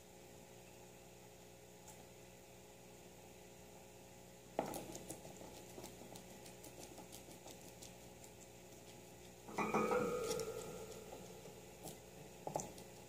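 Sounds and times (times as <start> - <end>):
guinea pig chewing crunchily: 4.5 - 13.0.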